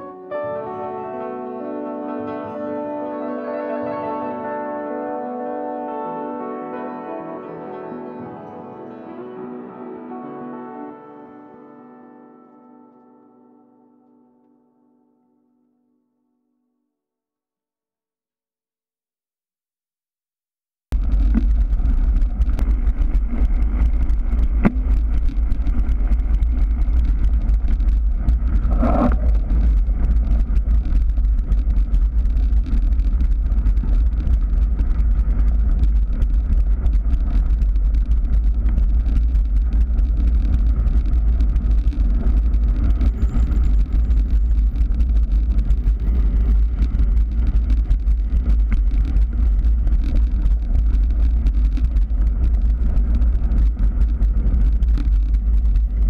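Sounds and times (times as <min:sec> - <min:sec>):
wind buffeting microphone: 0:21.0 - 0:56.0.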